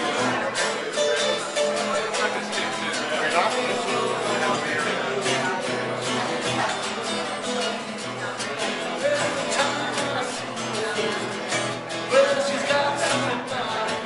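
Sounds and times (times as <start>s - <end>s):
acoustic guitars strummed: 0.0s - 14.0s
man singing into a microphone: 0.0s - 14.0s.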